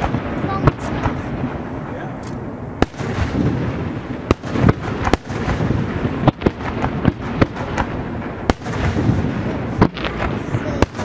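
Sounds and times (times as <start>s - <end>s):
fireworks bangs and cracks: 0.0s - 11.0s.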